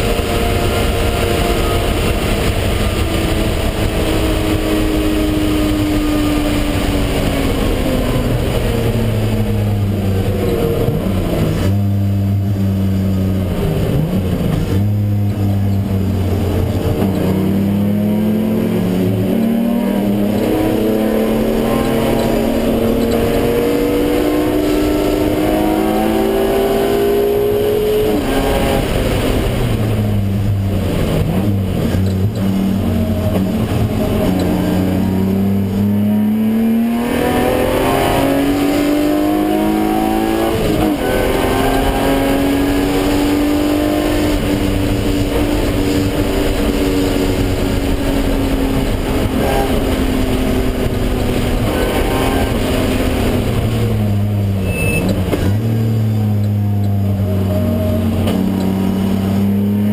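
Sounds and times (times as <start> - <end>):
car engine at full throttle: 0.0 - 59.9.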